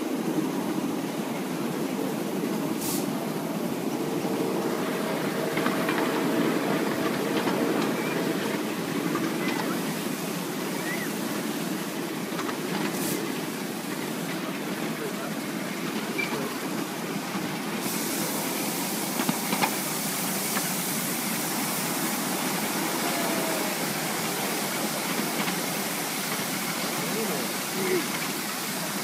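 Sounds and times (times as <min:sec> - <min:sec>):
locomotive steam hissing: 0:00.0 - 0:29.0
train wheels on track: 0:00.0 - 0:29.0.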